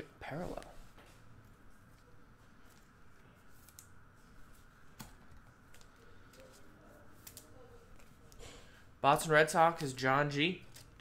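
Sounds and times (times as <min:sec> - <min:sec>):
trading cards shuffling: 0:00.3 - 0:08.4, 0:10.6 - 0:11.0.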